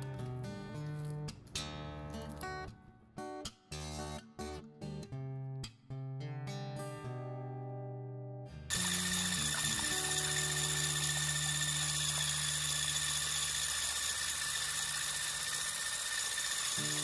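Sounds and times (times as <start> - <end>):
electric hand mixer whining: 8.7 - 17.0.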